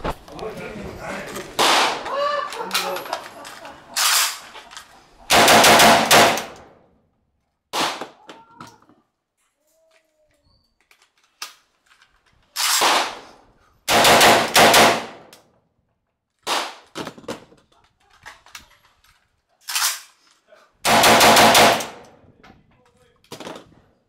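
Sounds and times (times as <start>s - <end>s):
rifle shots: 1.6s - 2.1s, 5.3s - 6.8s, 7.7s - 8.2s, 12.6s - 13.3s, 13.9s - 15.3s, 16.5s - 16.8s, 20.8s - 22.1s.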